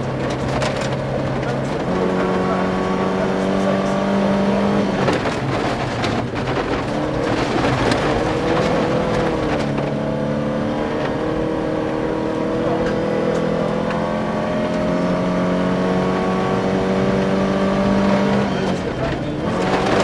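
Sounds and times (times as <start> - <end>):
gravel clicking against car: 0.0 - 3.2, 4.4 - 10.3, 17.9 - 20.0
rally car engine running hard: 0.0 - 20.0.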